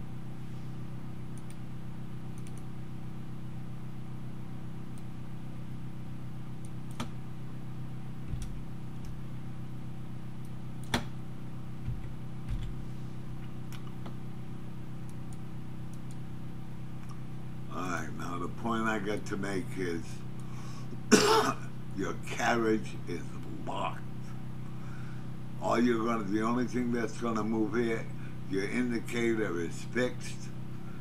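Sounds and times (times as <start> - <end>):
steady low hum: 0.0 - 31.0
mouse clicks: 1.3 - 1.6, 2.4 - 2.7, 15.0 - 16.2.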